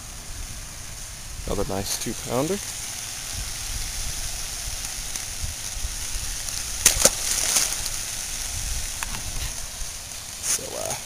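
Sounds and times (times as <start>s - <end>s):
fish splashing into water: 6.6s - 8.4s.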